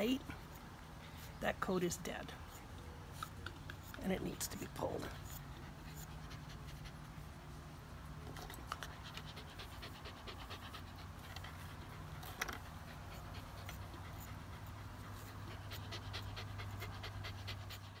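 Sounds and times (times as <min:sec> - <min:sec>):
dog panting: 0:00.0 - 0:18.0.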